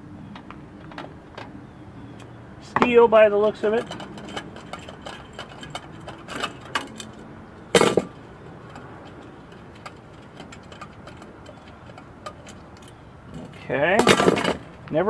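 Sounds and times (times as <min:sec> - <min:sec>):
light metallic clicks and scrapes: 0:02.2 - 0:15.0
loud metal clank: 0:03.8 - 0:12.6, 0:13.3 - 0:14.8.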